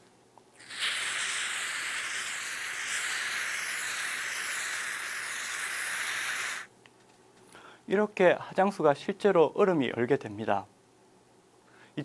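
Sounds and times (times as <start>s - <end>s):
aerosol spray hiss: 0.6s - 6.7s.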